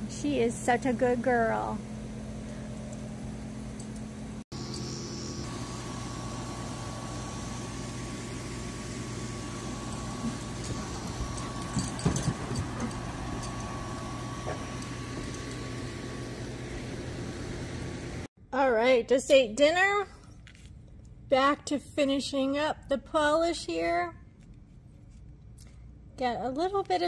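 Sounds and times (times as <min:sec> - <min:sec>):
low machine hum: 0:00.0 - 0:18.9.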